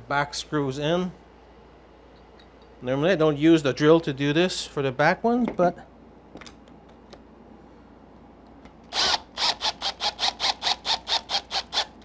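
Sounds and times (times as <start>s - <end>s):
cordless drill driving screw: 8.9s - 12.0s.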